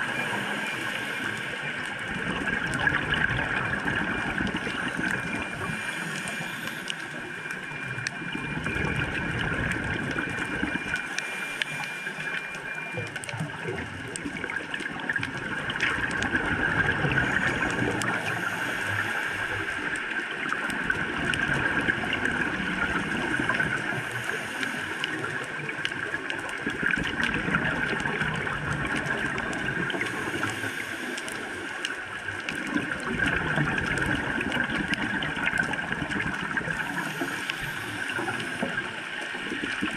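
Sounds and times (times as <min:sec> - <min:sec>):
exhaled bubbles rumbling: 0:00.0 - 0:39.9
underwater noise: 0:00.0 - 0:39.9
regulator hissing inhale: 0:05.7 - 0:07.2, 0:18.2 - 0:19.6, 0:30.1 - 0:31.7, 0:36.9 - 0:38.7.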